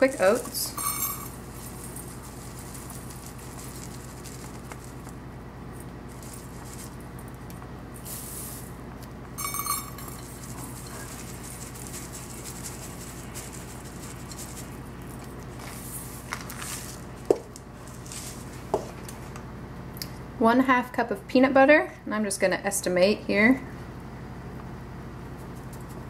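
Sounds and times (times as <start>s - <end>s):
low electrical hum: 0.0s - 26.0s
oats pouring into bowl: 0.2s - 5.2s, 5.8s - 7.1s, 9.4s - 17.1s
metal clinking on glass: 0.6s - 1.4s, 9.4s - 10.3s.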